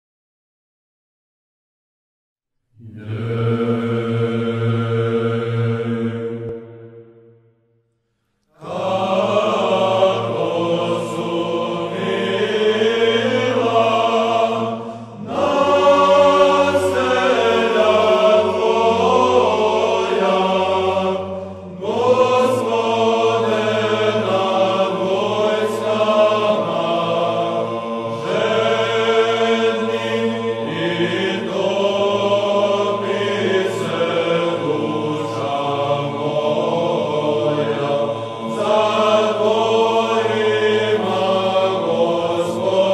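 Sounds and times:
choir chanting: 2.8 - 7.6, 8.6 - 42.9
low drone: 8.6 - 42.9.

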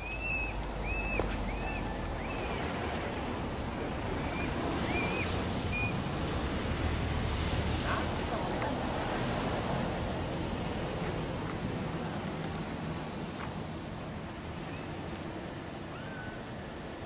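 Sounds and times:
bird chirps: 0.0 - 2.7.

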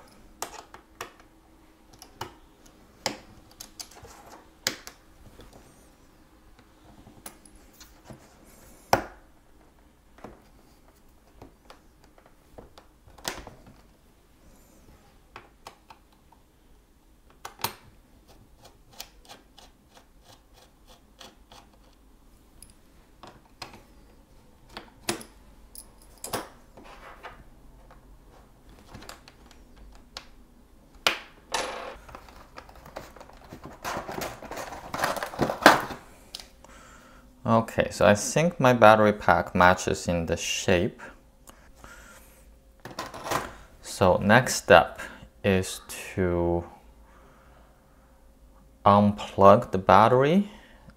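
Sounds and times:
laptop parts rattling: 32.0 - 36.0.

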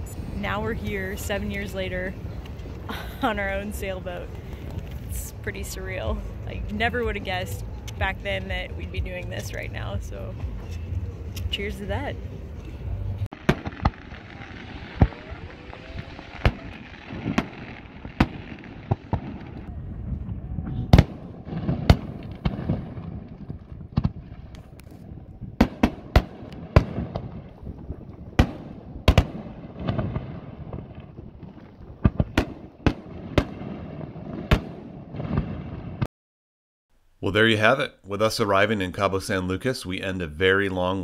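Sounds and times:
low rumble: 0.0 - 36.0
sharp bangs and pops: 13.3 - 19.7, 20.9 - 36.1.

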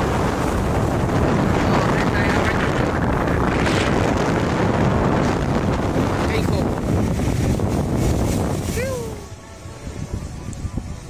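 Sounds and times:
surf breaking over rocks: 0.0 - 9.4
wind buffeting microphone: 0.0 - 11.0.

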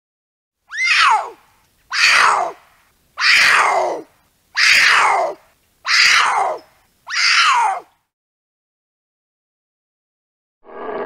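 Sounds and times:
puma harsh cries: 0.7 - 2.6, 3.2 - 7.9.

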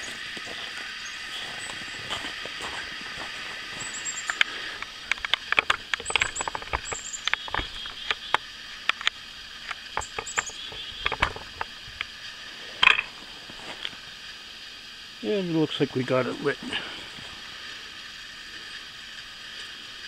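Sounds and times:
high bird chirps: 0.0 - 2.0, 3.7 - 4.4, 6.0 - 8.4, 10.0 - 11.2.

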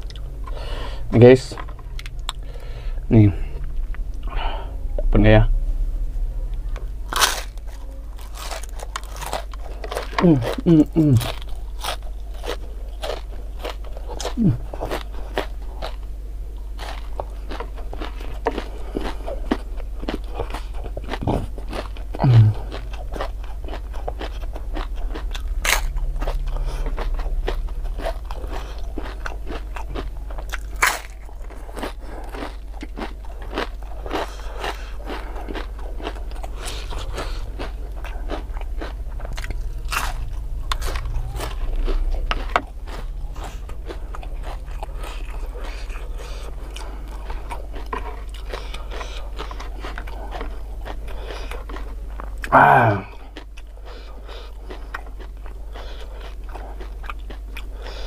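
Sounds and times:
crunchy food being chewed: 0.0 - 2.7, 6.5 - 58.0
person humming: 10.2 - 11.4, 14.3 - 14.7, 22.2 - 22.7, 52.5 - 53.2.

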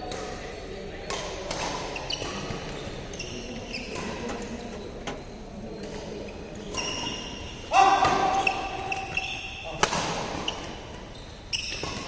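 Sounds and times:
shoes squeaking on court floor: 0.0 - 12.0
rackets striking shuttlecocks: 5.8 - 12.0.

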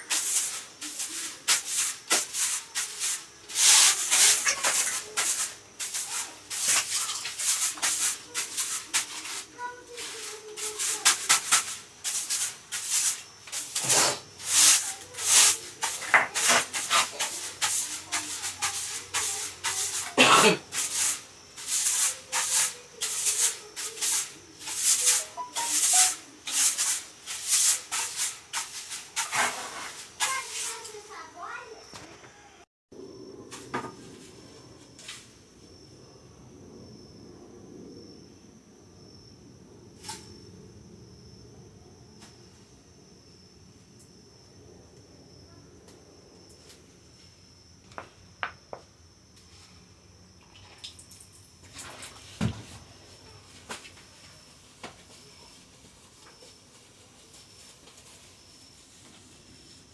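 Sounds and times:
broom sweeping a floor: 0.0 - 31.8, 33.5 - 35.4, 40.0 - 40.4, 51.8 - 59.9.

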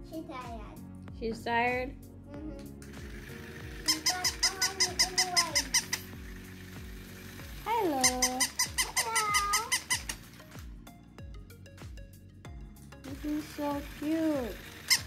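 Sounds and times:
toy walking mechanism clicking: 2.8 - 10.5, 13.1 - 15.0
squeaky electronic yelps: 3.8 - 6.1, 8.0 - 10.2.

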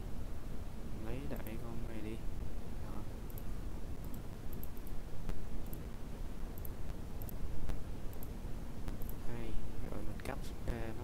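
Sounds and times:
low background noise: 0.0 - 11.0
computer mouse clicking: 3.3 - 5.9, 6.6 - 8.3, 8.9 - 9.2.

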